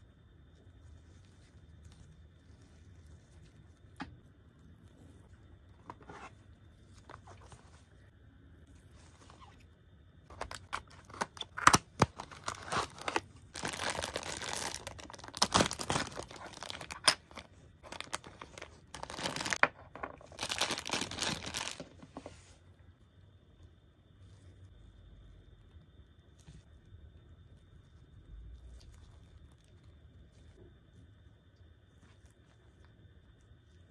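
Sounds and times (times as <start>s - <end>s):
plastic bag crinkling: 10.3s - 22.4s.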